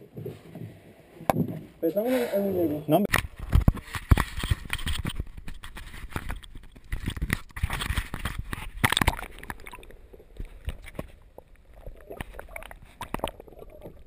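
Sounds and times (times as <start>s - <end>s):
water sloshing and gurgling: 3.3s - 14.0s.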